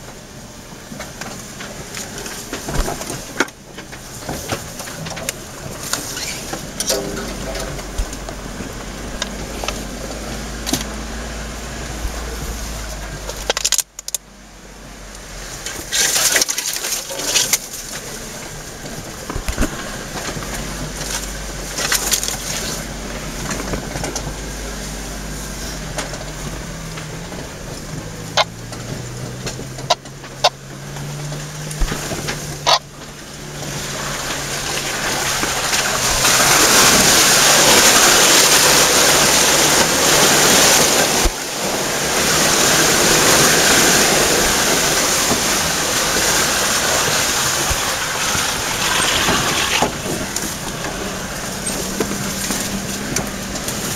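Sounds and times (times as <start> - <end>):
knocks and rattles over bumps: 0.0 - 14.3, 15.5 - 53.9
engine running at low speed: 0.0 - 53.9
rush of noise: 31.6 - 53.9.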